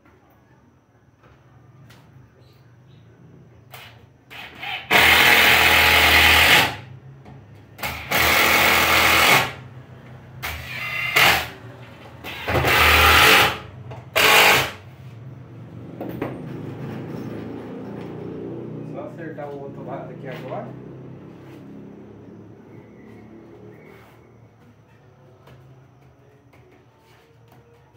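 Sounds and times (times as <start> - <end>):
cordless drill bursts: 3.8 - 6.8, 7.8 - 9.6, 10.4 - 11.6, 12.2 - 14.8.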